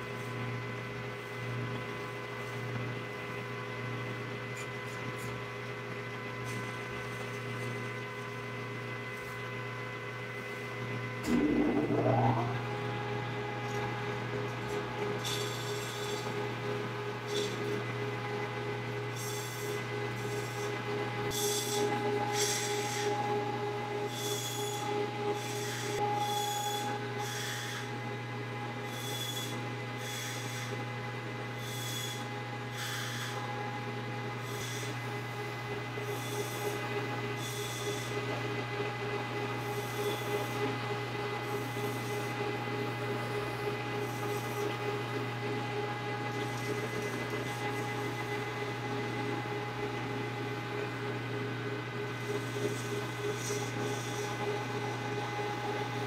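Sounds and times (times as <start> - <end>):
metal lathe humming: 11.2 - 14.4.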